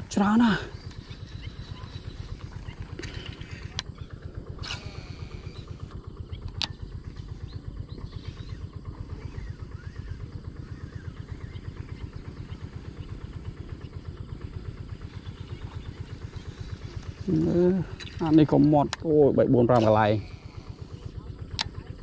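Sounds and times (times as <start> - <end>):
small engine chugging: 0.0 - 22.0
sharp clicks: 4.6 - 6.8.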